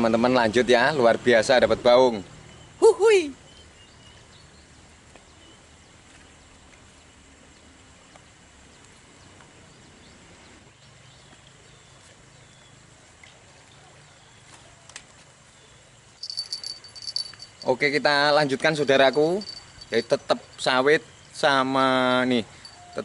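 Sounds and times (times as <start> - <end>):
faint bird chirps: 18.7 - 23.0.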